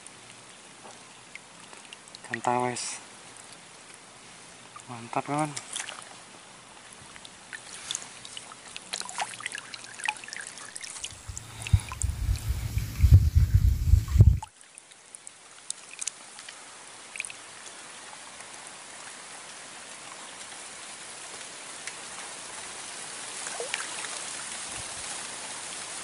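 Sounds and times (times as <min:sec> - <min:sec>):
river water flowing: 0:07.4 - 0:14.4
faint ticks and chirps: 0:11.0 - 0:14.5.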